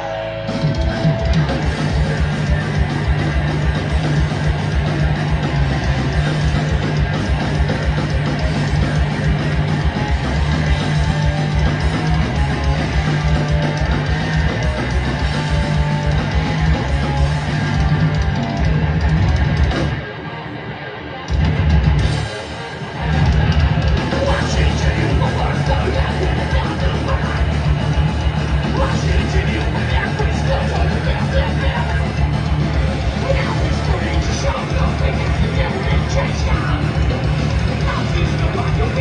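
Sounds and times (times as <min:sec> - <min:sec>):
fast drums: 0:00.0 - 0:20.1, 0:21.3 - 0:39.0
bass guitar: 0:00.0 - 0:39.0
distorted electric guitar riffing: 0:00.0 - 0:39.0.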